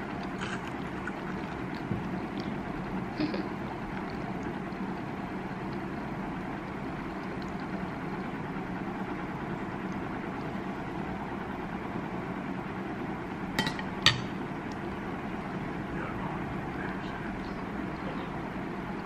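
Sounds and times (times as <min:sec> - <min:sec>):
steady background hum: 0:00.0 - 0:19.0
metal spoon clinking on ceramic plate: 0:13.6 - 0:14.3.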